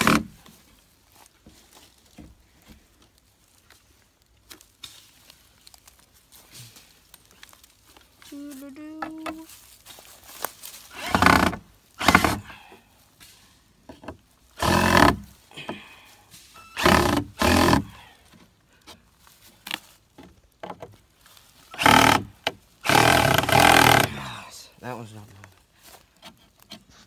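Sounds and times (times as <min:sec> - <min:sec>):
cordless drill driving screws: 0:00.0 - 0:00.3, 0:10.9 - 0:12.4, 0:14.6 - 0:15.2, 0:16.8 - 0:18.0, 0:21.7 - 0:24.2.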